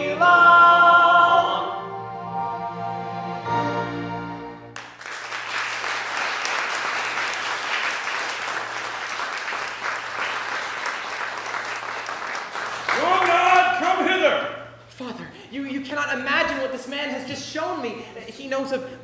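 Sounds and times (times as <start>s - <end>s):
musical theatre song: 0.0s - 19.0s
audience applauding: 4.8s - 14.1s.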